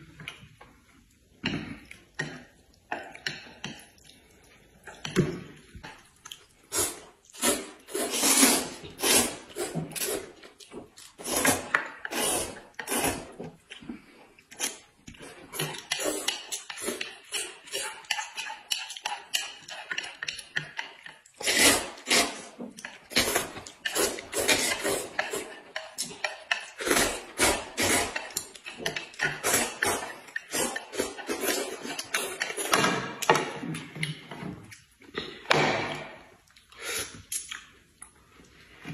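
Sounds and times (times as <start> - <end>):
people slurping noodles: 6.6 - 10.4, 11.2 - 20.2, 21.4 - 32.8.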